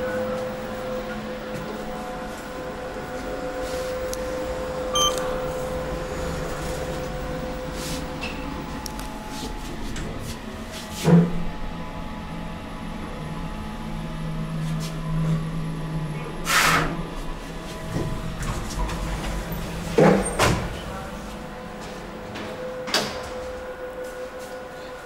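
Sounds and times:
elevator humming: 0.0 - 16.4, 17.0 - 25.0
elevator clunks: 4.8 - 6.1, 17.8 - 23.8.

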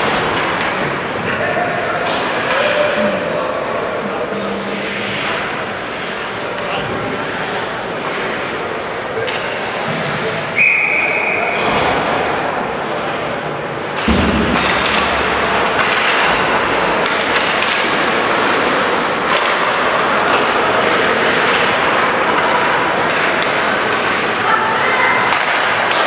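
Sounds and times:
skate and stick noise: 0.0 - 26.0
din of voices: 1.2 - 10.5
short high whistle: 10.6 - 11.5.

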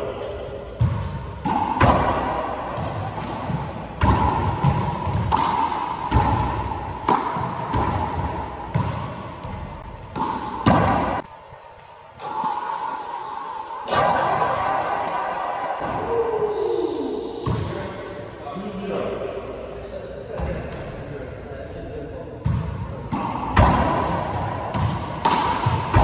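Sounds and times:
handball hits echoing off walls: 0.2 - 16.5, 17.4 - 17.8, 22.4 - 26.0.

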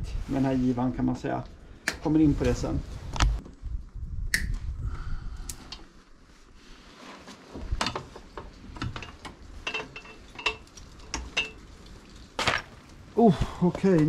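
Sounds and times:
metallic clicks and clatter: 7.8 - 13.0.

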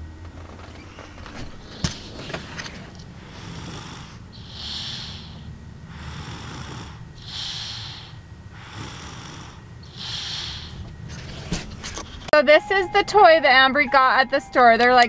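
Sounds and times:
baby snoring softly: 3.2 - 10.9.

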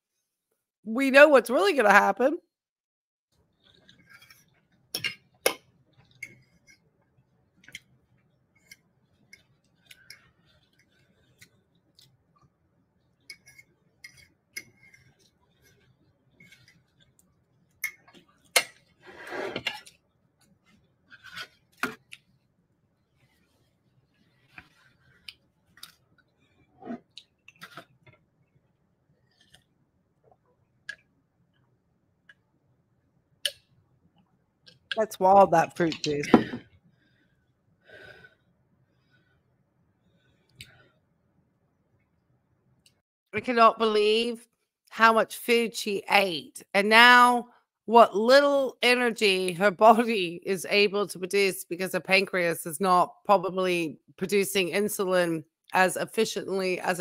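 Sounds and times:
metal fork scraping ceramic plate: 18.6 - 19.9.

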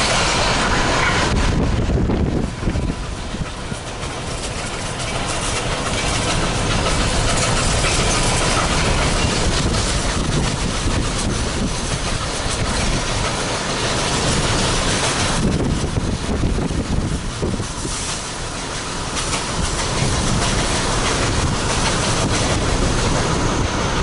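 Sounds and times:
steam train rushing past: 0.0 - 24.0
wind on microphone: 0.4 - 3.8, 5.9 - 13.4, 14.2 - 18.1, 19.4 - 24.0.

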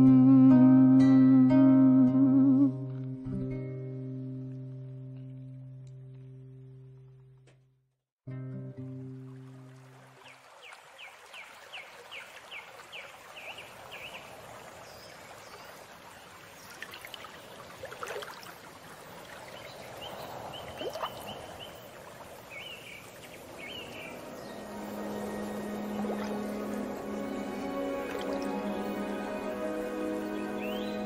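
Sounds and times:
birds chirping: 19.5 - 31.0
low sustained music tone: 23.6 - 31.0
bird trill: 30.2 - 31.0.

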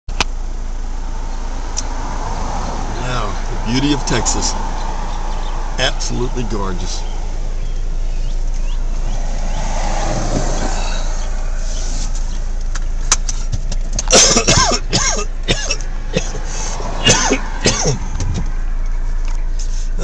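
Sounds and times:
diesel engine idling: 0.1 - 20.0
person coughing: 14.1 - 18.2.

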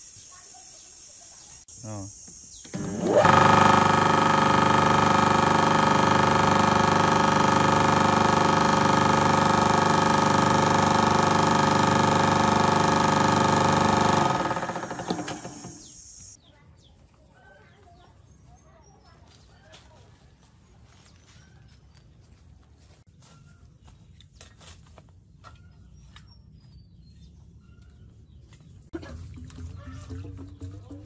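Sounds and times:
electric water pump humming: 2.6 - 16.4, 29.0 - 31.0.

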